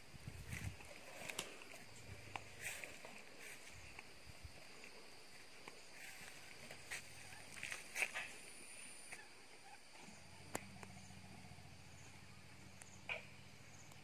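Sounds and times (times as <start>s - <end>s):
light crackles: 0.4s - 4.2s.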